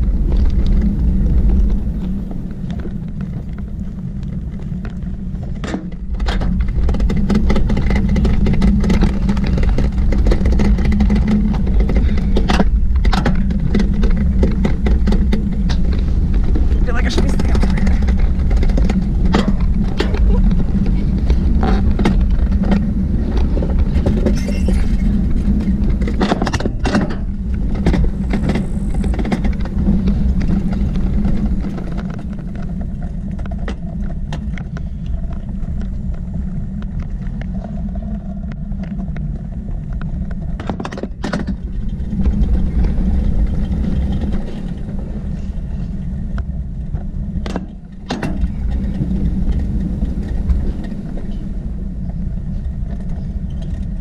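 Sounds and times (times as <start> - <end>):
sled running down steel track: 0.0 - 34.3.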